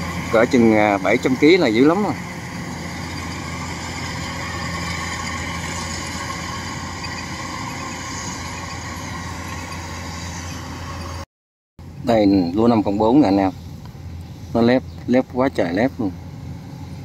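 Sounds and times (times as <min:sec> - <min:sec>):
combine harvester engine drone: 0:00.0 - 0:11.2, 0:11.8 - 0:17.0
cutting machinery hiss and whirr: 0:00.0 - 0:11.2.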